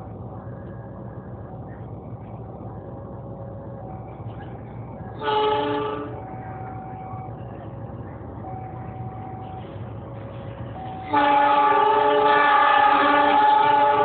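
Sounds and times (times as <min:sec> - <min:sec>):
diesel locomotive engine hum: 0:00.0 - 0:14.0
train horn blast: 0:05.2 - 0:06.2, 0:11.0 - 0:14.0.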